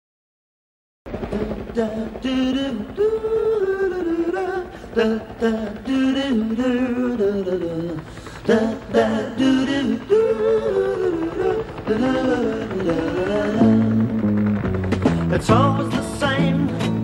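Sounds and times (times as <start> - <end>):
person singing: 1.3 - 14.2, 15.2 - 17.0
backing music: 7.9 - 17.0.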